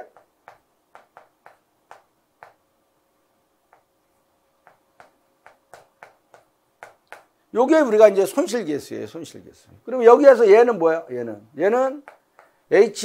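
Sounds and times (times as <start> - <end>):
chalk tapping on chalkboard: 0.0 - 2.6, 3.7 - 3.9, 4.6 - 7.4, 12.0 - 12.6.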